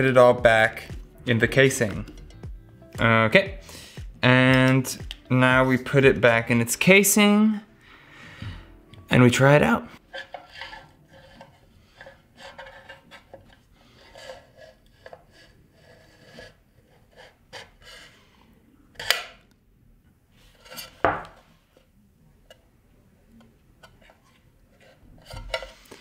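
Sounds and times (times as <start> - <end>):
metal scraping on metal: 9.9 - 18.3, 23.8 - 26.0.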